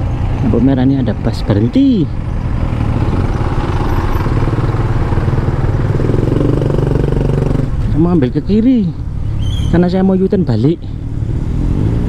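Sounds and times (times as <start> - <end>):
motorcycle engine running: 2.3 - 8.2.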